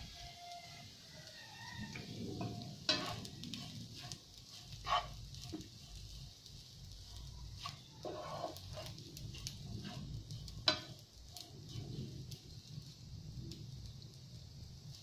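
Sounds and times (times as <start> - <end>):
fried rice sizzling in pan: 0.0 - 15.0
turner stirring and scraping: 1.5 - 13.3
turner tapping on pan: 7.6 - 11.0.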